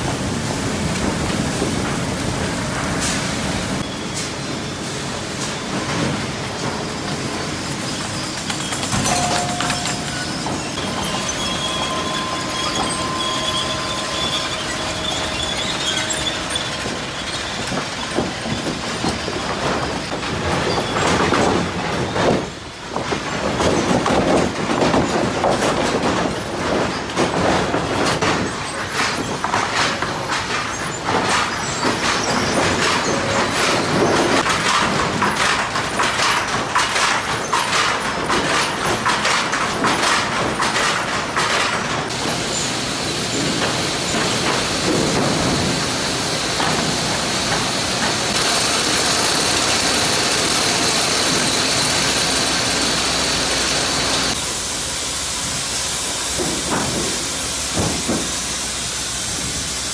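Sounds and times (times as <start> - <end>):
chain conveyors rattling: 6.8 - 54.4
wooden boards clattering: 17.6 - 52.8, 56.3 - 58.6.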